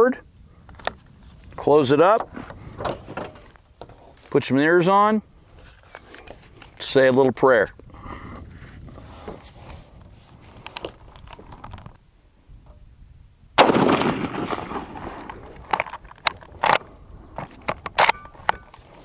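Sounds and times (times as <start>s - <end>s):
rifle shot: 13.6s - 15.5s
rifle bolt metallic clicks: 17.7s - 18.8s.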